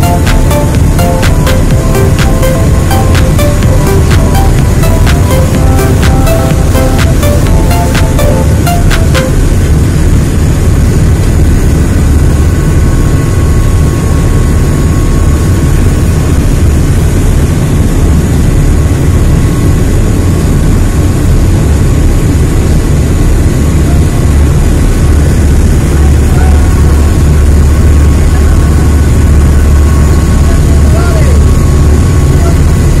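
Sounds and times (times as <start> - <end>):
boat engine rumble: 0.0 - 33.0.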